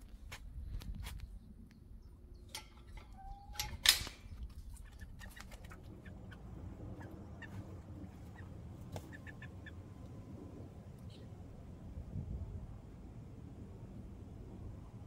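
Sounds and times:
metal door latch click: 3.6s - 4.2s
hen clucking softly: 4.6s - 9.8s.

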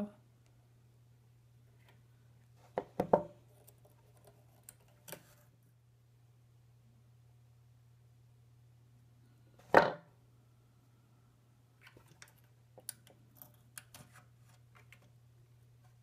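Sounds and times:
small clicks and scratches: 2.6s - 5.6s, 11.8s - 15.2s.

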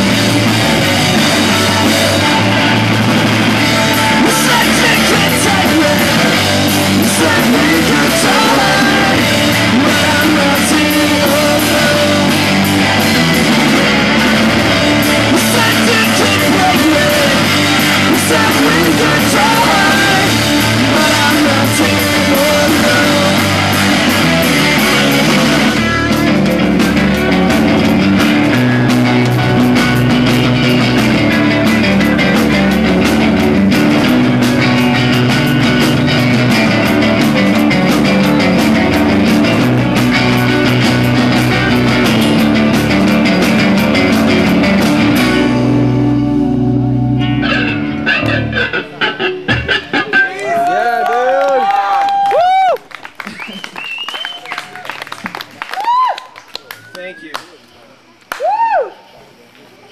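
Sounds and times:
drumming: 0.0s - 46.3s
live rock band playing: 0.0s - 50.8s
held guitar chord ringing: 45.2s - 50.0s.

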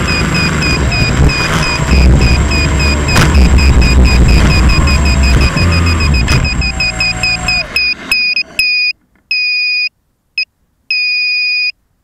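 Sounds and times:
low rumble: 0.0s - 8.5s
electronic beeper beeps: 0.0s - 9.8s.

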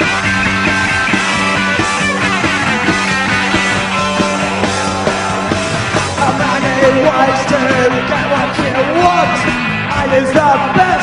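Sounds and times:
electric guitar chords: 0.0s - 11.0s
steady drum beat: 0.0s - 11.0s.

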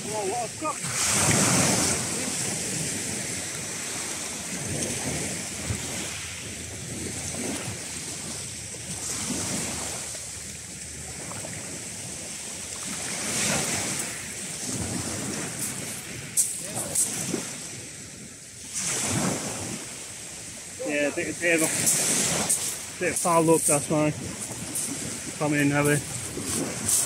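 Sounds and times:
wind on microphone: 0.0s - 10.0s, 12.9s - 20.6s, 21.2s - 27.0s
waves breaking on shingle: 21.2s - 27.0s.

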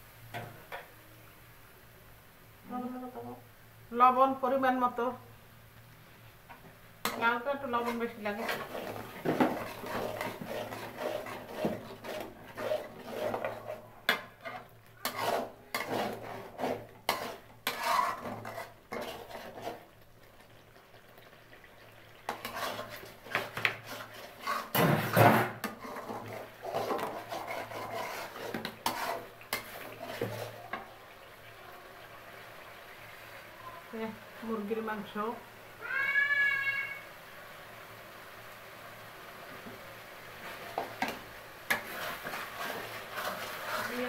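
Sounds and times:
spoon scraping metal pan: 7.0s - 20.0s, 22.3s - 30.9s, 40.4s - 44.0s.

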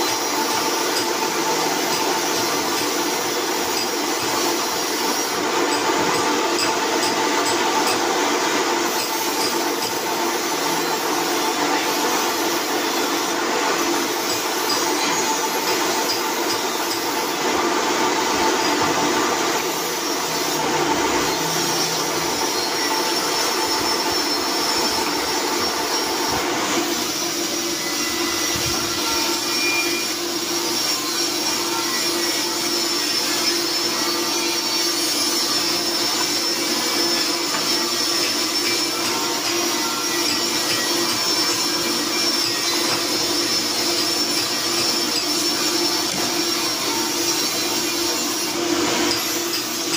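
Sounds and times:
drill press motor humming: 17.1s - 26.5s.

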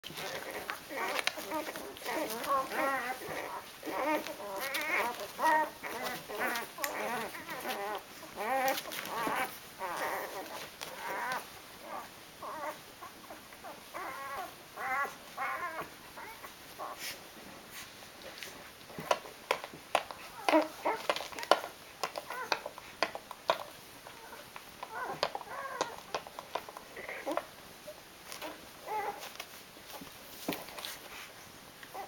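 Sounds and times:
puppies squeaking and whimpering: 0.1s - 17.0s, 20.2s - 22.8s, 23.5s - 29.4s.

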